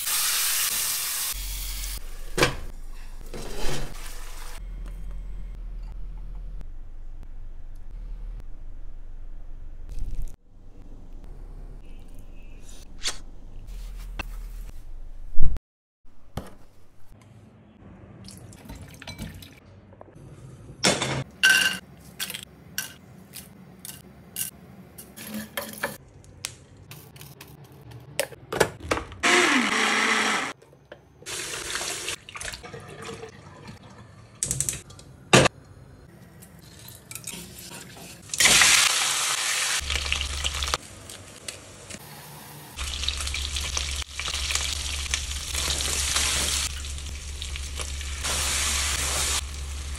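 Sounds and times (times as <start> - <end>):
electric blender running: 29.2 - 30.6.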